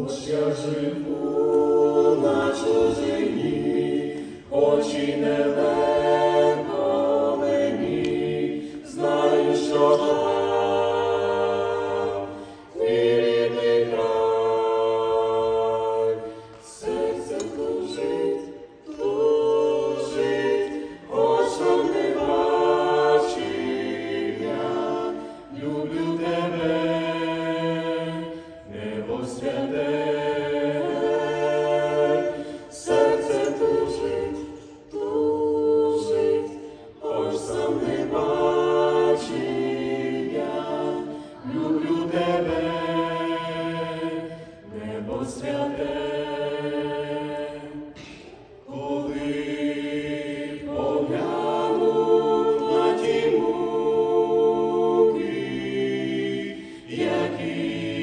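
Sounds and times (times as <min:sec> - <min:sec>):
vocal quartet singing a cappella: 0:00.0 - 0:58.0.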